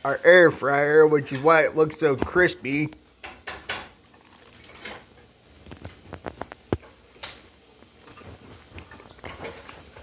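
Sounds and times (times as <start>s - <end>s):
chewing crispy crust: 5.5s - 6.9s.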